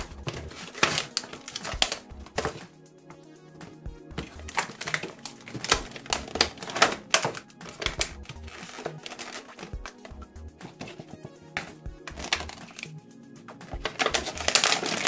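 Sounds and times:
plastic packaging crackling: 0:00.3 - 0:02.6, 0:04.2 - 0:10.0, 0:11.6 - 0:12.9, 0:13.8 - 0:15.0.

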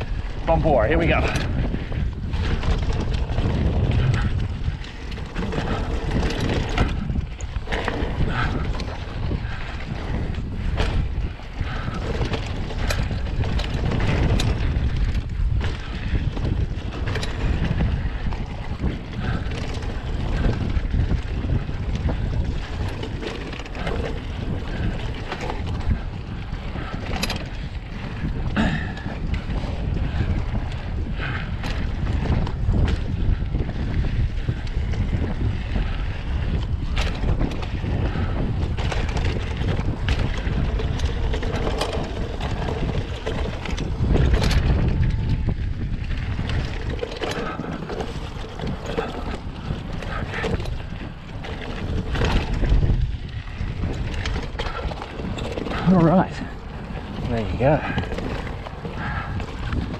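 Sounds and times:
bike clicks and rattles: 0:00.0 - 0:59.9
bike tyres rolling on dirt: 0:00.0 - 0:59.9
wind buffeting microphone: 0:00.0 - 0:59.9.

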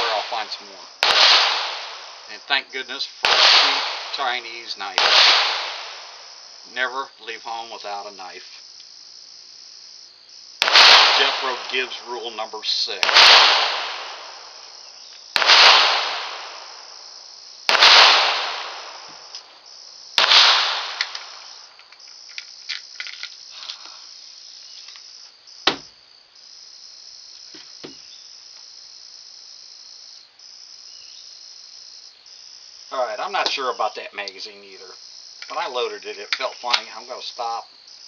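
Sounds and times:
pistol shots echoing: 0:00.0 - 0:02.6, 0:03.2 - 0:06.3, 0:10.6 - 0:12.3, 0:12.9 - 0:14.8, 0:15.4 - 0:17.1, 0:17.7 - 0:19.4, 0:20.2 - 0:21.6
insects chirring: 0:00.0 - 0:38.0.

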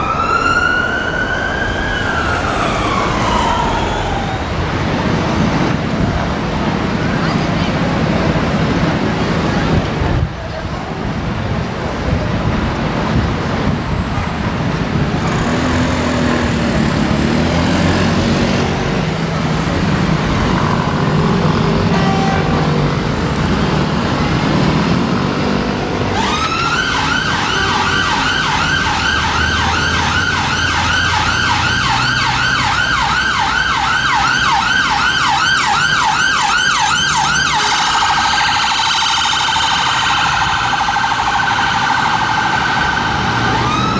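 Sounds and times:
ambulance siren: 0:00.0 - 0:05.8, 0:26.0 - 0:43.9
road traffic rumble: 0:00.0 - 0:43.9.

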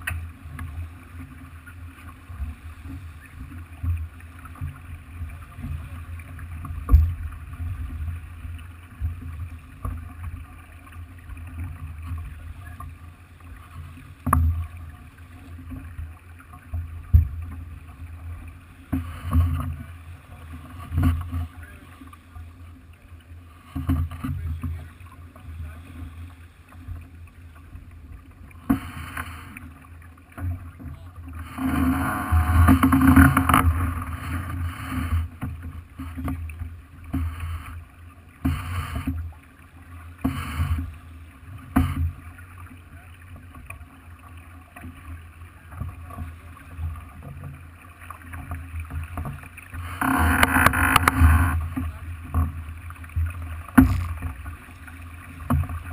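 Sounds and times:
low rumble of wind and water: 0:00.0 - 0:55.9
rushes of water: 0:00.0 - 0:55.9
sharp knocks: 0:53.8 - 0:54.3.

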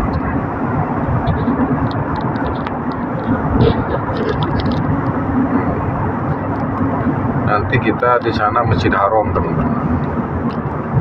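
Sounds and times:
tyre and engine rumble: 0:00.0 - 0:11.0.

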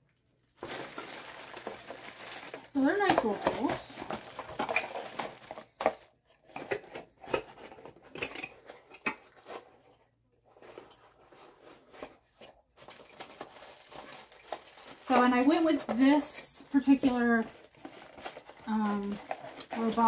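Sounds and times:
packaging rustling: 0:00.4 - 0:20.0
metal tools clinking: 0:10.6 - 0:13.3.

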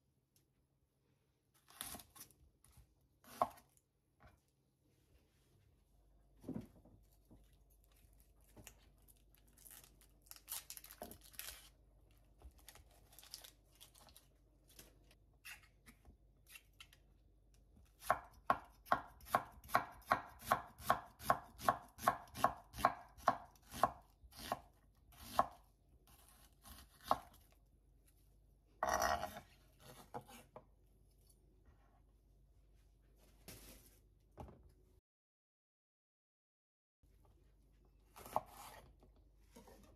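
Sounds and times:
knife scrape: 0:28.8 - 0:30.6.

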